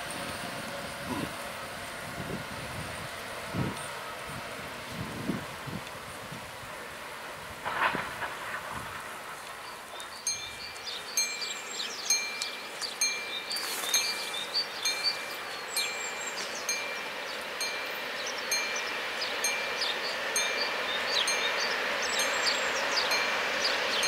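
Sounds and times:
approaching train: 0:00.0 - 0:24.0
level-crossing warning bell: 0:10.2 - 0:24.0.

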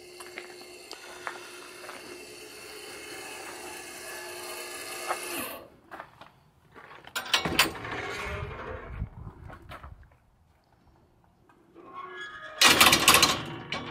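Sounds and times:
steady mechanical hum: 0:00.0 - 0:06.0
gate unlatching and clanking: 0:07.2 - 0:08.8, 0:12.0 - 0:13.9.

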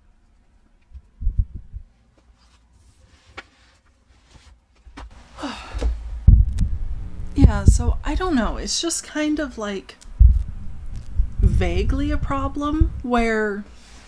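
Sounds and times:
breathy effort sound: 0:05.2 - 0:06.2.

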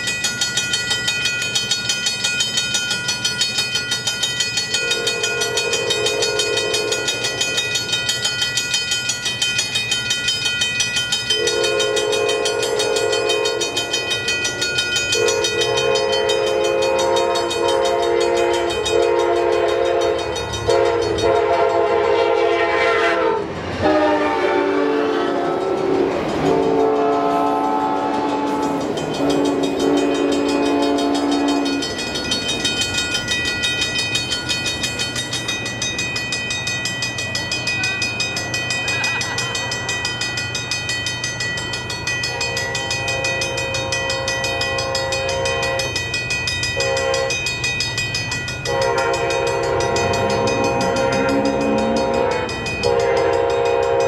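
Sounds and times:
crossing bells ringing: 0:00.0 - 0:54.0
train air horn blasts: 0:04.8 - 0:07.2, 0:11.3 - 0:14.0, 0:15.1 - 0:31.8, 0:42.3 - 0:46.0, 0:46.8 - 0:47.4, 0:48.7 - 0:54.0.

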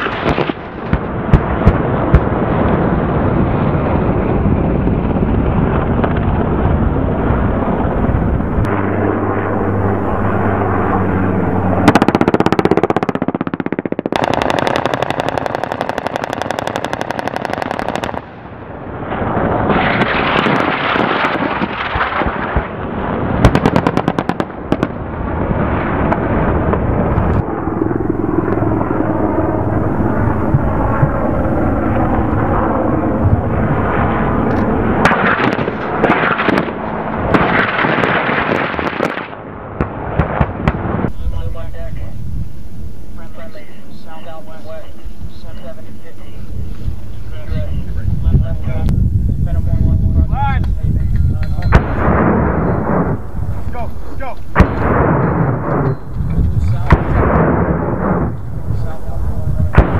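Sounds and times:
heavy rumble: 0:00.0 - 0:59.9
automatic weapon fire: 0:11.8 - 0:18.5, 0:19.5 - 0:25.0, 0:35.0 - 0:40.9, 0:54.6 - 0:55.8, 0:56.8 - 0:58.3
rounds striking target: 0:54.5 - 0:56.0.

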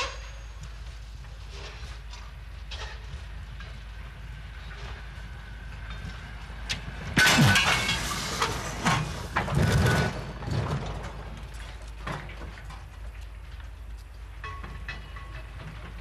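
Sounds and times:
freight wagons rattling and clanking: 0:00.0 - 0:16.0.

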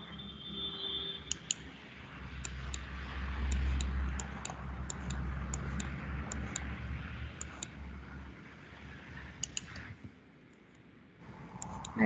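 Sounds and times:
computer mouse clicking: 0:01.3 - 0:01.7, 0:02.4 - 0:06.7, 0:07.3 - 0:07.8, 0:09.4 - 0:10.8, 0:11.4 - 0:12.0.

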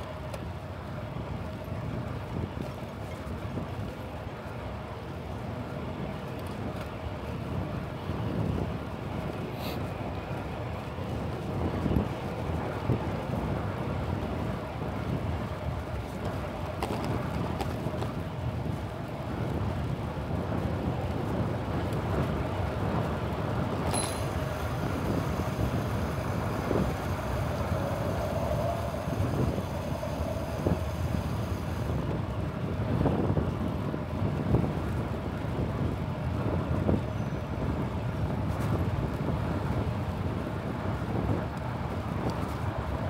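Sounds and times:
road traffic: 0:00.0 - 0:43.0
wind rumbling on microphone: 0:00.0 - 0:43.0.

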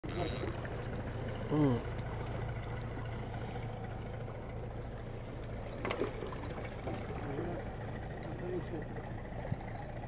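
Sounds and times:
water lapping at rocks: 0:00.0 - 0:07.8
low motor hum: 0:00.0 - 0:10.0.

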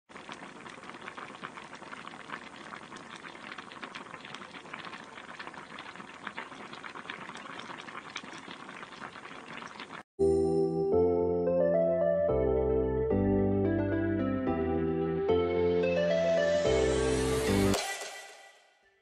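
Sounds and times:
broth bubbling in a pot: 0:00.1 - 0:10.1.

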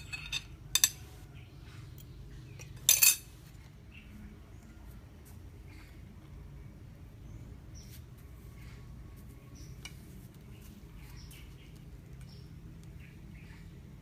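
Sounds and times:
small birds chirping: 0:01.2 - 0:14.0.

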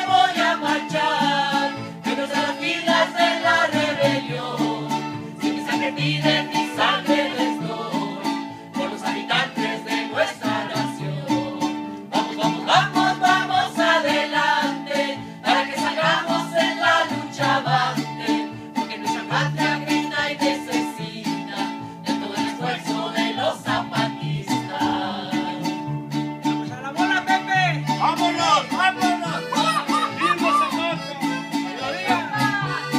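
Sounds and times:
piano accordion: 0:00.0 - 0:09.8, 0:27.7 - 0:32.9
group of voices singing: 0:00.0 - 0:26.2, 0:29.3 - 0:32.9
strummed guitars: 0:00.0 - 0:32.9.

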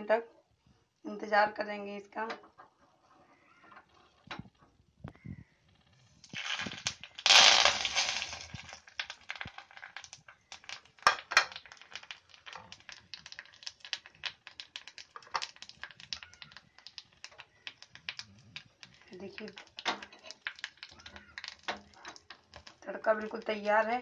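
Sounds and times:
hot oil sizzling and spices popping: 0:04.2 - 0:24.0.

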